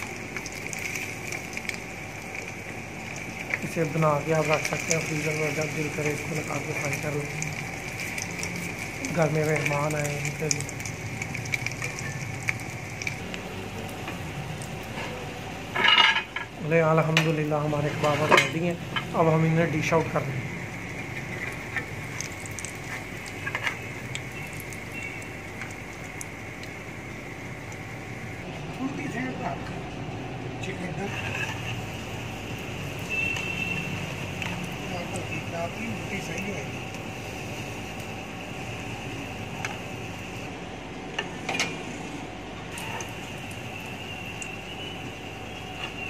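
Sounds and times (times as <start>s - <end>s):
food sizzling in oil: 0.0s - 46.0s.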